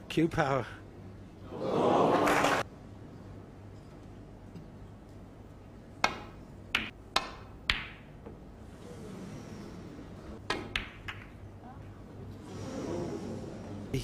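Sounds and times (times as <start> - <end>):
snooker balls clacking: 6.0 - 8.4, 10.4 - 11.5.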